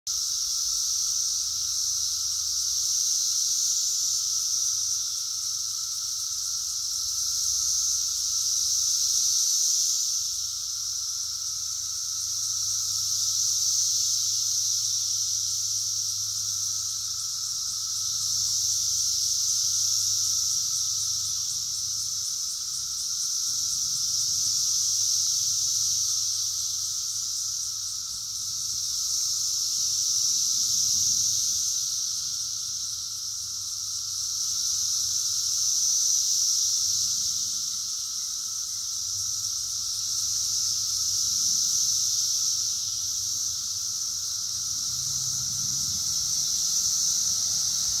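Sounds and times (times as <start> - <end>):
cicadas buzzing: 0.1 - 48.0.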